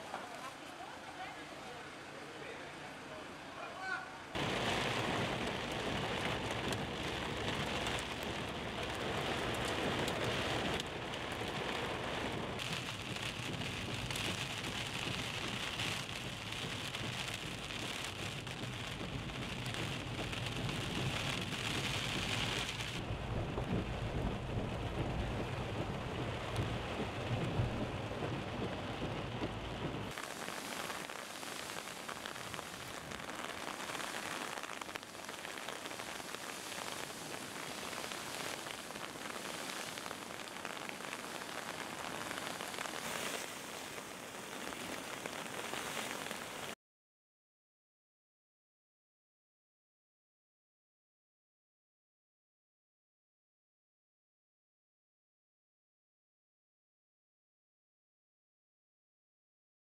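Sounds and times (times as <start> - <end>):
rain falling on wet ground: 0.0 - 2.2, 3.6 - 46.8
low rumble: 18.4 - 30.1.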